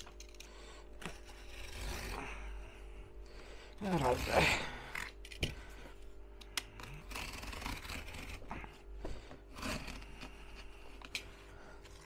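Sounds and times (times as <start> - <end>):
cardboard being cut by hand: 1.0 - 2.5, 3.8 - 4.8, 6.8 - 12.0.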